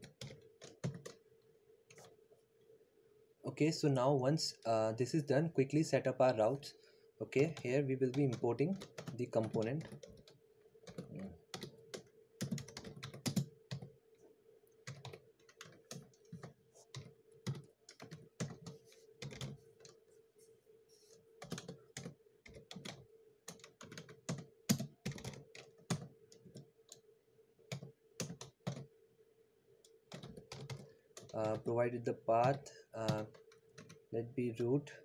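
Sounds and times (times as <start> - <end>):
typing on a keyboard: 0.0 - 1.2, 7.4 - 13.9, 14.8 - 20.0, 21.4 - 27.0, 27.7 - 28.9, 30.1 - 31.7, 32.4 - 34.0
faint steady hum: 0.0 - 35.0.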